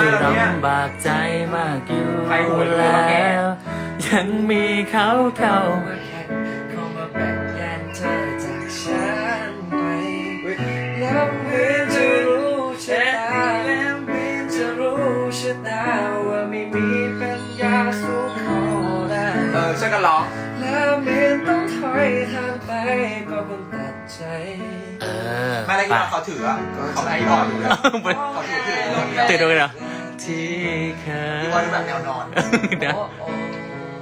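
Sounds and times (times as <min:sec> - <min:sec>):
electronic keyboard chords: 0:00.0 - 0:24.1
man singing pop ballad: 0:00.0 - 0:26.1, 0:27.0 - 0:34.0.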